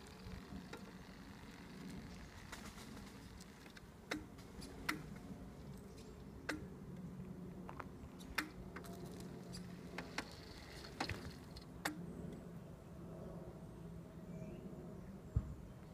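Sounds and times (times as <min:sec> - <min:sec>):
wheelchair motors humming: 0:00.0 - 0:05.7, 0:08.7 - 0:11.7.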